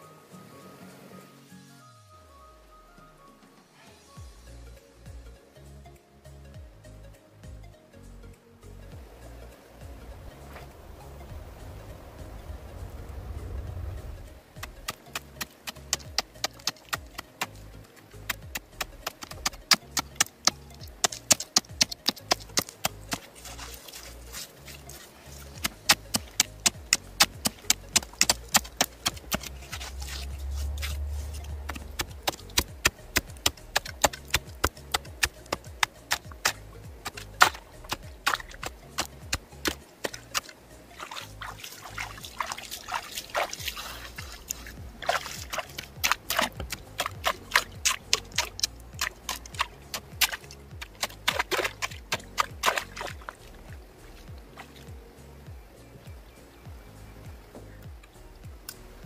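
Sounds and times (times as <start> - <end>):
low rumble: 8.9 - 14.9.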